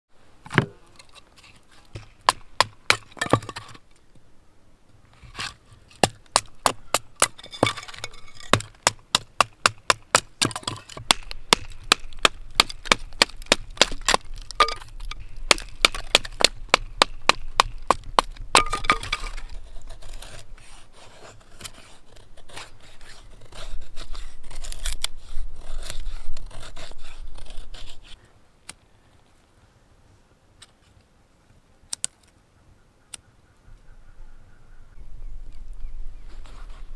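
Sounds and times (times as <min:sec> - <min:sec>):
wood cracking and scraping: 0:00.4 - 0:04.0, 0:05.1 - 0:28.2
wood splitting knocks and cracks: 0:01.9 - 0:03.8, 0:06.0 - 0:19.5.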